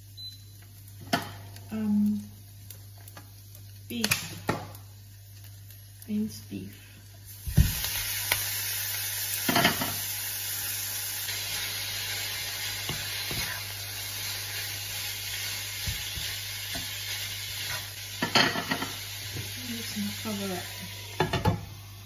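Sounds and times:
meat sizzling: 0.0s - 22.0s
meat landing in frying pan: 7.3s - 8.6s.

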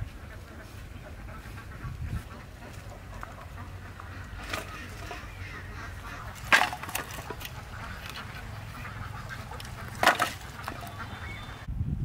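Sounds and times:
waterfowl calling: 0.0s - 11.7s.

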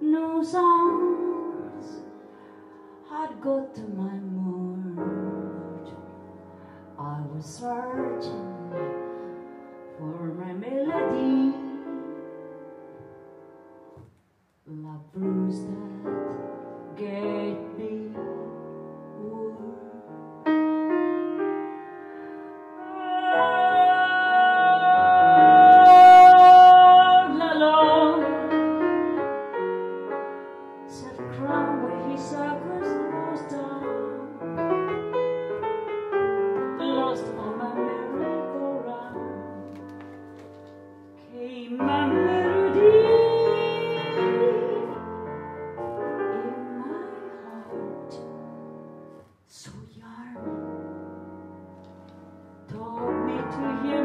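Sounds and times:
woman singing: 0.0s - 2.1s, 3.0s - 6.1s, 7.0s - 9.0s, 10.0s - 12.2s, 14.6s - 20.2s, 22.8s - 29.2s, 30.9s - 34.6s, 36.6s - 39.8s, 41.2s - 48.4s, 49.5s - 51.0s, 52.7s - 54.0s
slow jazz piano: 0.0s - 54.0s.

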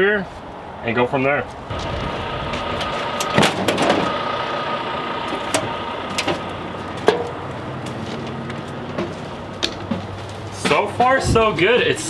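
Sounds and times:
mechanical hum: 1.6s - 11.5s
metal steps clanking: 1.7s - 11.0s
footsteps on metal steps: 5.2s - 11.1s.

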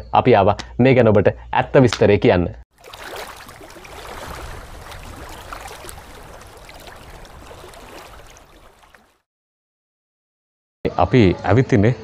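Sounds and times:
rushing noise with crackles: 3.0s - 9.0s.

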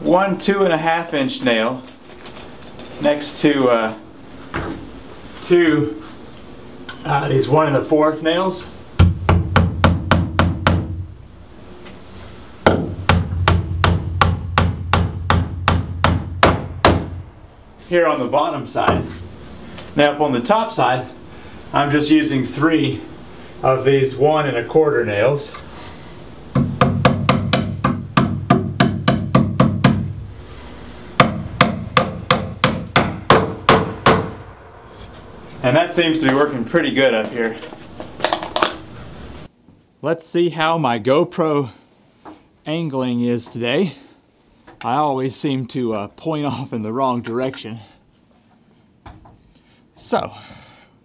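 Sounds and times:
hammer striking nails: 9.0s - 11.0s, 12.6s - 17.2s, 26.5s - 30.1s, 31.2s - 34.4s
faint high metallic ring: 13.5s - 16.1s.

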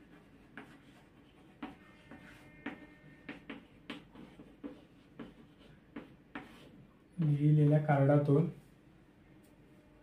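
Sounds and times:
chalk writing on a blackboard: 0.0s - 6.9s.

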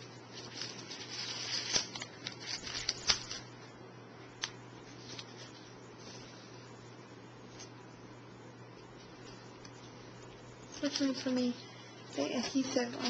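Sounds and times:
paper and cardstock rustling: 0.0s - 3.6s, 4.4s - 6.7s, 8.8s - 11.6s.

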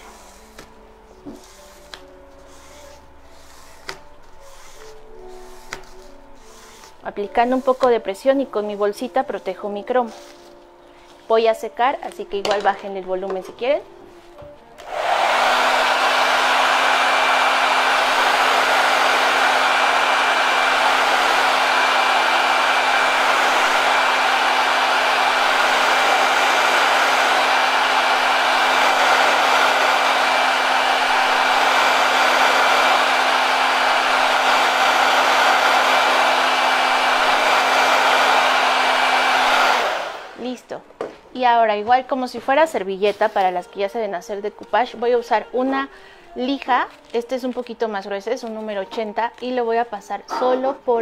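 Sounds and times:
hot-air dryer blowing: 14.8s - 40.6s.

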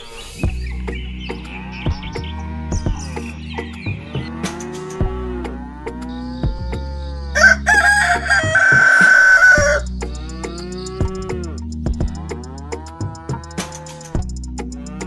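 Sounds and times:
background music: 0.0s - 15.0s
rooster crowing: 7.2s - 9.9s.

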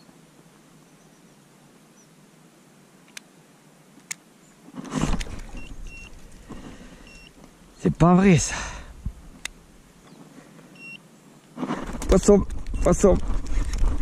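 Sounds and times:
rustling scraping handling noise: 4.7s - 7.6s, 11.5s - 14.0s
fish finder beeps: 5.4s - 6.2s, 7.0s - 7.4s, 10.8s - 11.0s, 12.7s - 13.0s
sharp clicks: 9.4s - 9.6s.

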